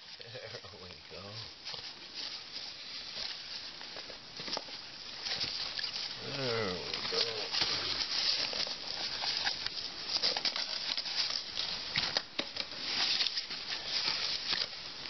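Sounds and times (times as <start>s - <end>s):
nylon fabric rustling: 1.3s - 12.2s.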